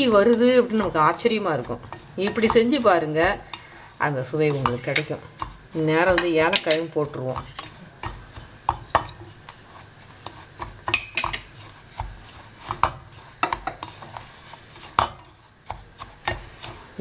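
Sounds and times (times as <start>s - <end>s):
spatula knocking against pan: 0.0s - 3.7s, 4.5s - 9.3s, 10.6s - 13.9s, 15.0s - 16.5s
wooden spatula scraping a pan: 0.0s - 17.0s.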